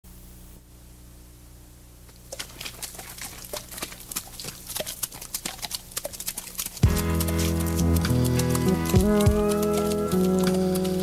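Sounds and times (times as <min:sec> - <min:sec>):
low steady hum: 0:00.1 - 0:11.0
horses' hooves clopping: 0:02.3 - 0:11.0.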